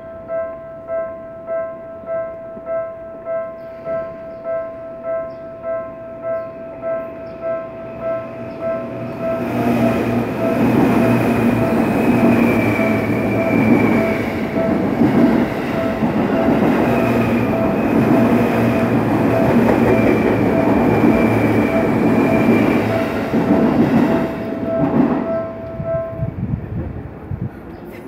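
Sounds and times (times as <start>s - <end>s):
crossing warning bell ringing: 0.0s - 26.8s
train whine: 2.0s - 27.7s
train wheels rumbling and clattering: 7.0s - 28.0s.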